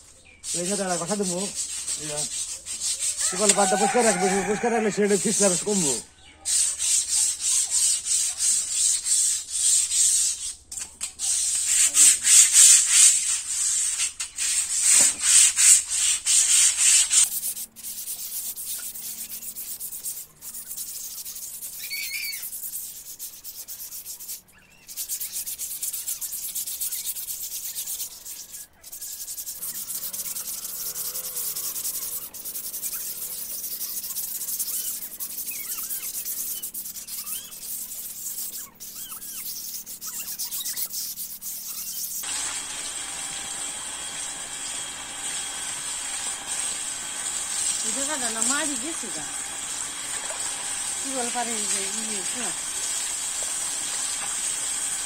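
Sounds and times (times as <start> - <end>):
hand scrubbing with sand: 0.0 - 55.0.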